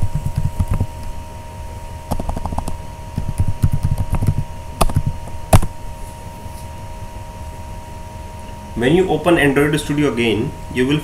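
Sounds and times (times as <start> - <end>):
faint steady hum: 0.0 - 11.0
keyboard typing: 2.1 - 5.7.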